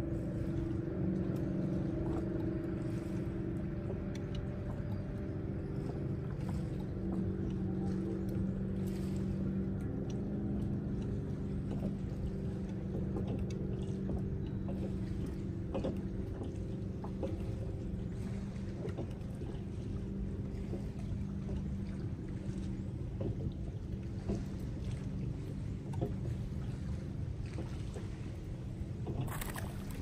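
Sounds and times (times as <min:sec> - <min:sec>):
boat motor humming: 0:00.0 - 0:30.0
faint clicks: 0:03.8 - 0:07.6.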